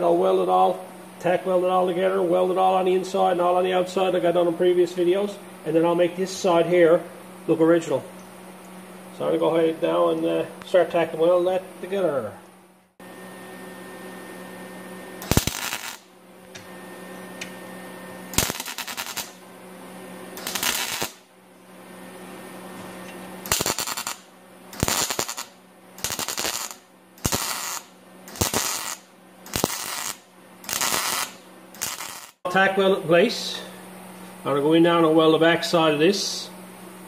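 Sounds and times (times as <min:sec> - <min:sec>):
welder arc crackling: 0:15.2 - 0:16.7, 0:18.3 - 0:19.4, 0:20.3 - 0:21.3, 0:22.8 - 0:32.4.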